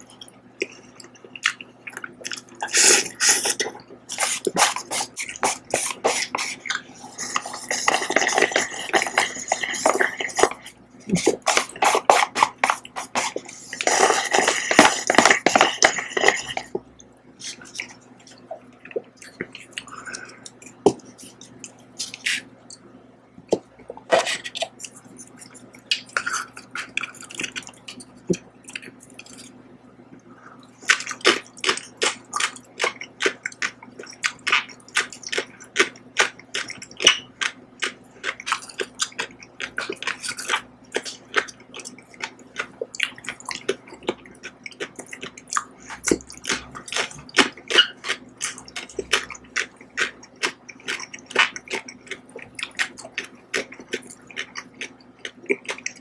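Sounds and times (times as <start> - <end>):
wet chewing mouth clicks: 0.2 - 16.8, 30.7 - 56.0.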